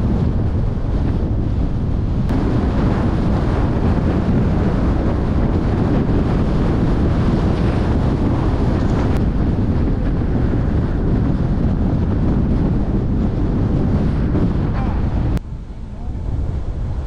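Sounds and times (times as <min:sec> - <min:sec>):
car driving rumble: 0:00.0 - 0:17.0
wind over microphone: 0:00.0 - 0:17.0.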